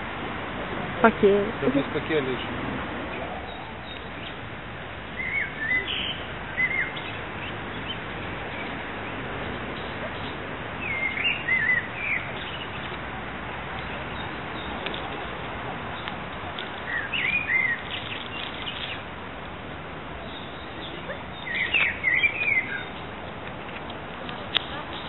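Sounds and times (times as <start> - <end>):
steady background noise: 0.0 - 25.0
bird chirping: 3.1 - 4.5, 5.1 - 13.1, 13.7 - 19.1, 20.2 - 25.0.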